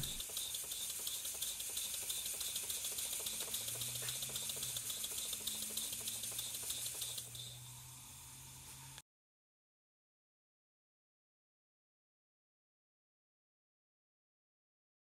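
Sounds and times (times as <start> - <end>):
steam engine exhaust ticking: 0.0 - 7.7
steam hissing: 0.0 - 9.0.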